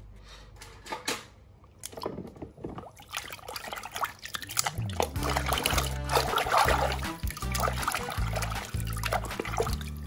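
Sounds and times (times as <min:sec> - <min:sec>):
water splashing in a plastic tub: 0:01.7 - 0:10.0
background music with low bass: 0:04.8 - 0:10.0.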